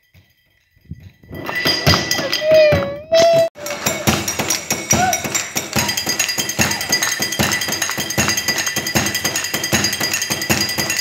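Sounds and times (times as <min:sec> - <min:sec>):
background music: 0:03.6 - 0:11.0.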